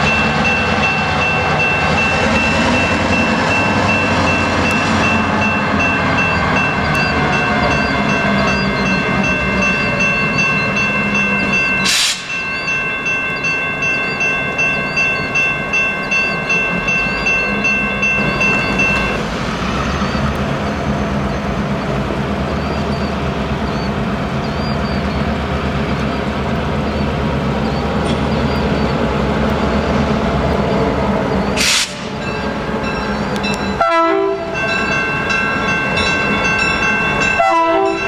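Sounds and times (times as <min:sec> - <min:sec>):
locomotive bell ringing: 0:00.0 - 0:28.8, 0:30.6 - 0:38.0
diesel locomotive engine rumble: 0:00.0 - 0:38.0.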